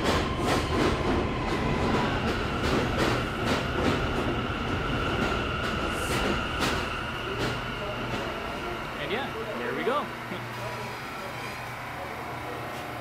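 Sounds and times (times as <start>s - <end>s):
train wheels clacking over rails: 0.0s - 10.0s
high train whine: 0.0s - 13.0s
subway train rumble: 0.0s - 13.0s.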